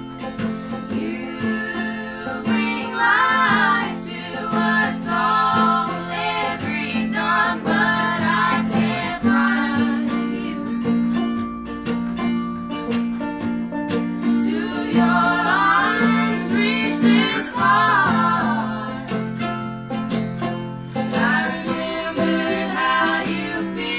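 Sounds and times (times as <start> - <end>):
banjo: 0.0 - 23.9
mandolin: 0.0 - 23.9
strummed acoustic guitar: 0.0 - 23.9
women singing in harmony: 0.5 - 11.0, 14.3 - 19.2, 21.1 - 23.9.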